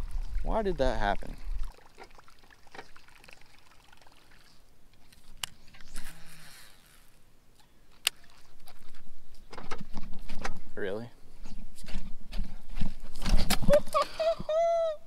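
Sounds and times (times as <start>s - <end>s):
water trickling against boat: 0.0s - 5.4s, 6.0s - 10.5s.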